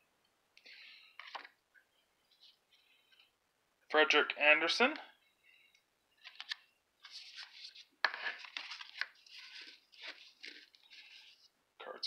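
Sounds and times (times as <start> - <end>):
cards sliding against each other: 6.2 - 11.4.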